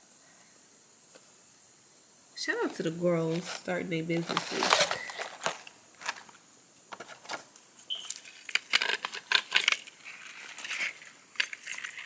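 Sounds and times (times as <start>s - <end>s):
jewelry clicking and rustling: 4.2s - 12.0s.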